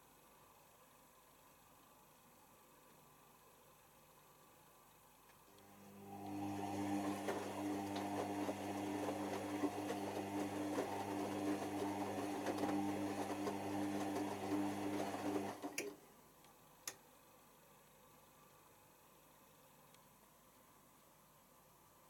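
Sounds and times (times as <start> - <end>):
washing machine motor hum: 5.6 - 16.1.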